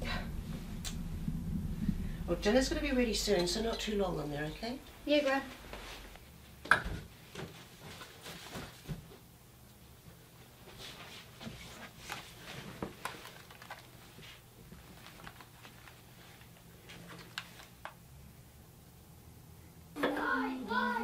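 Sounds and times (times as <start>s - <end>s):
low steady hum: 0.0s - 7.2s.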